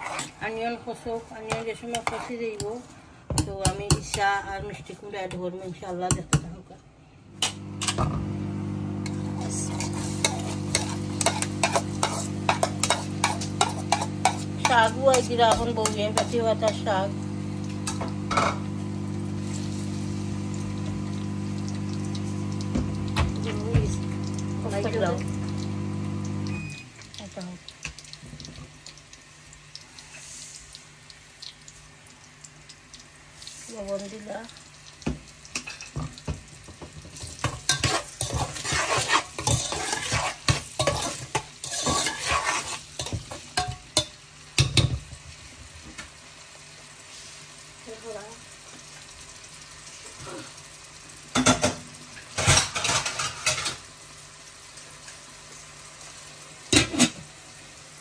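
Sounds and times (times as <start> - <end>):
utensil stirring and scraping: 0.0 - 0.4, 1.5 - 2.7, 9.0 - 16.9, 37.4 - 43.3
faint frying in pan: 0.0 - 58.0.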